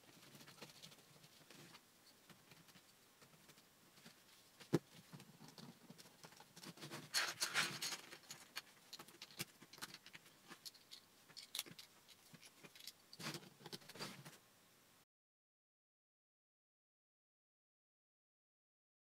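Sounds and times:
plastic bricks clicking and rattling: 0:04.7 - 0:14.0.

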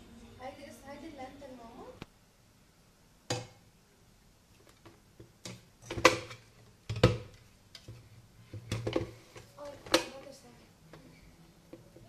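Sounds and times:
kitchen things knocking and clattering: 0:04.8 - 0:10.2.

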